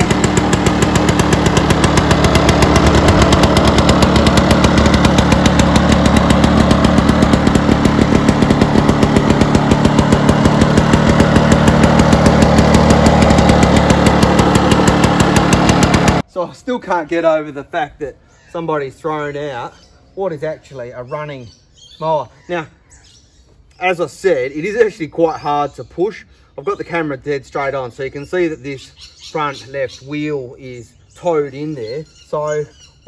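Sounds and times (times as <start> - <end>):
lawnmower engine running: 0.0 - 16.3.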